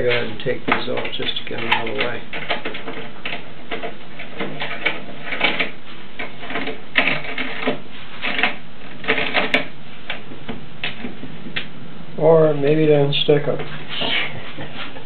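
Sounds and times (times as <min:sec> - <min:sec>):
clamps clicking and knocking: 0:00.0 - 0:10.2.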